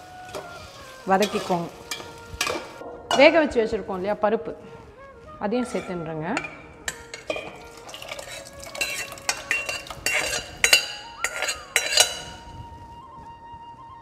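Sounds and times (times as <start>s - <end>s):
metal ladle clinking on steel pot: 1.2s - 3.4s, 5.6s - 12.5s.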